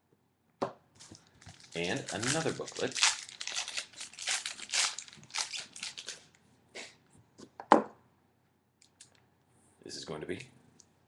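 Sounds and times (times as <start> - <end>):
wrapping rustling and crinkling: 1.0 - 6.4.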